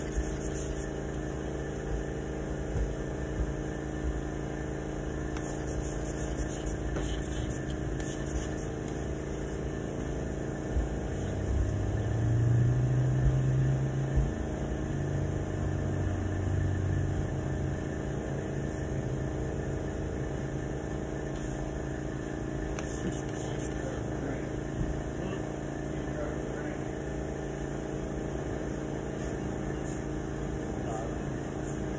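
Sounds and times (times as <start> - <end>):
mechanical hum: 0.0 - 31.9
spray bottle squirts: 5.4 - 8.6.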